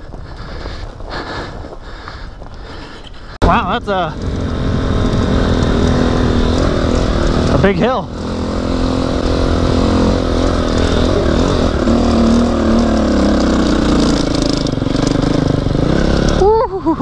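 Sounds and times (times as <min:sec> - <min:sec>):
dirt bike engine revving: 0:03.4 - 0:17.0.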